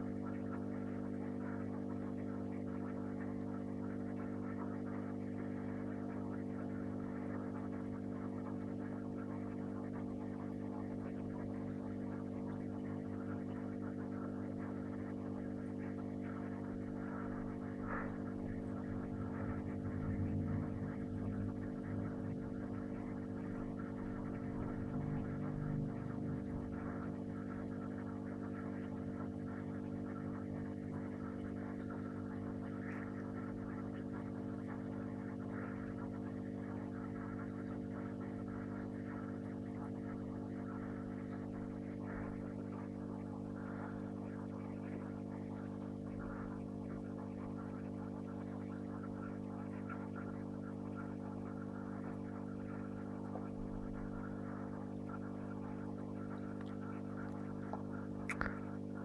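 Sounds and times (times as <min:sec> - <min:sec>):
aquarium equipment humming: 0:00.0 - 0:59.0
faint crackle: 0:26.4 - 0:59.0.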